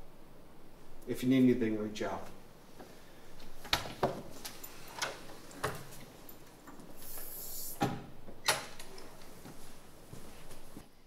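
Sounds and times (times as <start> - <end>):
door opening and shutting: 3.6 - 6.1, 6.7 - 9.3
footsteps: 9.0 - 10.9.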